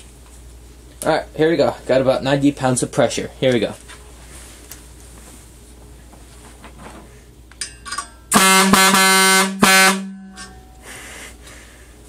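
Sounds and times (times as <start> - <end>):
truck air horn blowing: 8.3 - 10.5.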